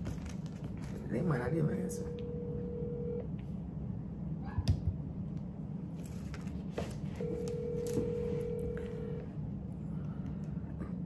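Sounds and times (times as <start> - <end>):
low steady hum: 0.0 - 11.0
telephone ringback tone: 2.0 - 3.3, 7.2 - 9.3.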